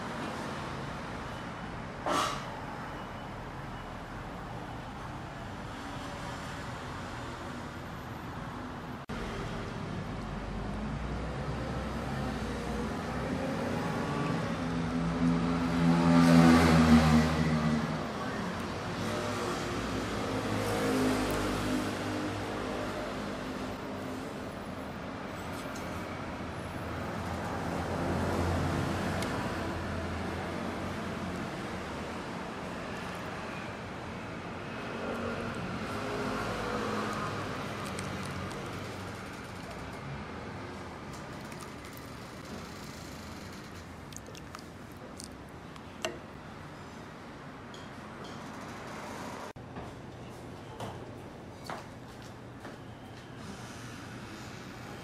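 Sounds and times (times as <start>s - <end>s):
street traffic noise: 0.0s - 55.0s
vehicle engine passing: 9.1s - 18.2s.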